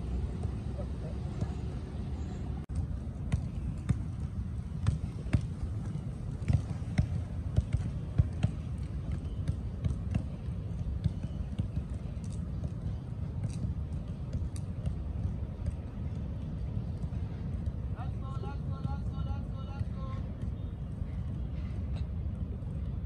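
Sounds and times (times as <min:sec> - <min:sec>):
footballs being kicked: 0:02.7 - 0:16.6.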